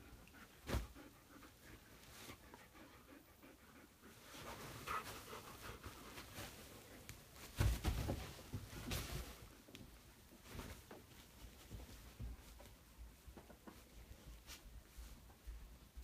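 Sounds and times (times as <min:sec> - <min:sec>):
bedding rustling: 0:00.0 - 0:03.1, 0:04.0 - 0:16.0
dog panting: 0:00.0 - 0:06.5
thump on bed: 0:07.5 - 0:09.3.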